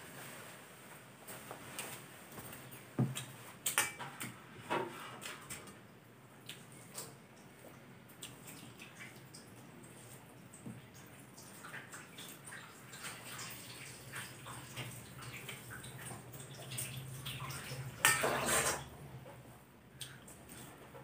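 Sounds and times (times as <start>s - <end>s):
chewing: 8.1s - 10.2s
scraping on plate: 18.0s - 18.9s.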